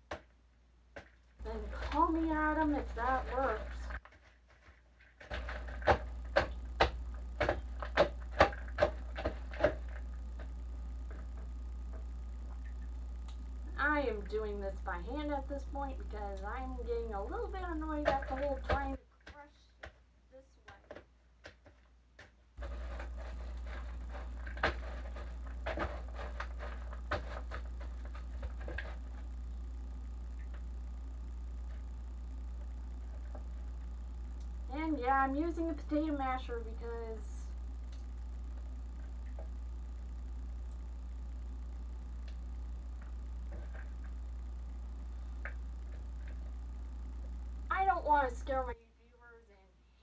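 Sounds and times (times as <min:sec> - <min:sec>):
low hum: 0:00.0 - 0:04.1, 0:05.0 - 0:19.7, 0:22.6 - 0:50.0
potato masher squelching fruit: 0:17.4 - 0:19.4.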